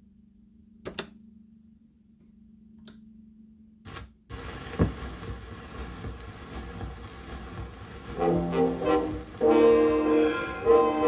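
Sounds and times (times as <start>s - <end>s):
record surface hiss and crackle: 3.8s - 11.0s.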